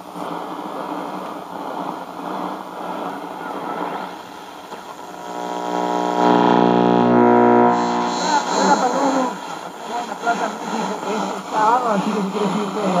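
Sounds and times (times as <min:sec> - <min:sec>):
faint radio station in static: 0:00.0 - 0:13.0
buzzing tone with overtones: 0:04.8 - 0:10.2.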